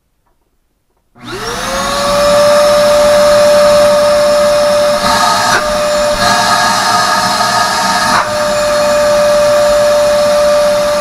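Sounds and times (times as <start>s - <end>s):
shop vacuum motor whining: 1.2s - 11.0s.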